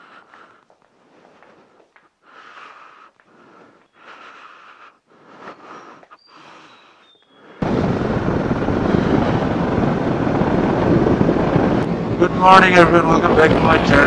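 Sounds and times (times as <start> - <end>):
wind rushing over microphone: 7.3 - 14.0.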